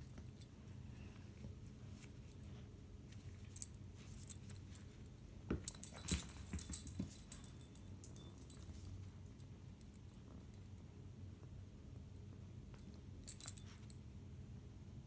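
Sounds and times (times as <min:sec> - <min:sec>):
dog collar tags jingling: 0:03.4 - 0:10.8, 0:13.3 - 0:14.0.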